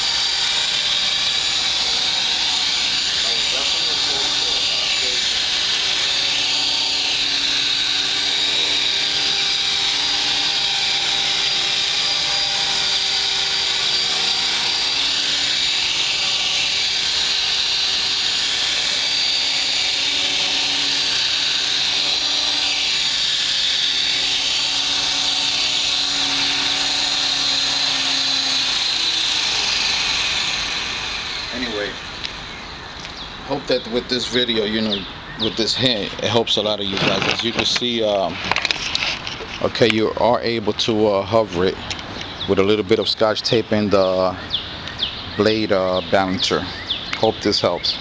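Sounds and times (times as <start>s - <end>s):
spinning rotor hum: 0.0s - 34.4s
high motor whine: 0.0s - 48.0s.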